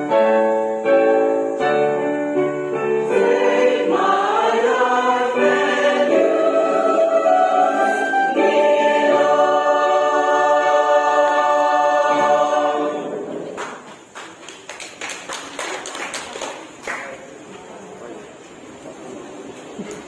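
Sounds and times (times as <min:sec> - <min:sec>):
choir singing held chords: 0:00.0 - 0:13.9
scattered applause: 0:13.5 - 0:17.4.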